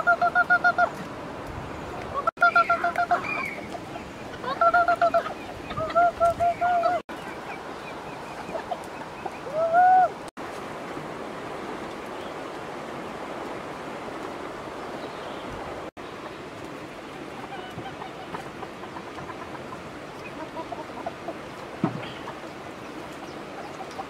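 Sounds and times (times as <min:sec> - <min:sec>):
chickens clucking: 0:02.0 - 0:09.6, 0:17.4 - 0:24.0
chicken squawk: 0:02.2 - 0:03.7, 0:04.4 - 0:07.0.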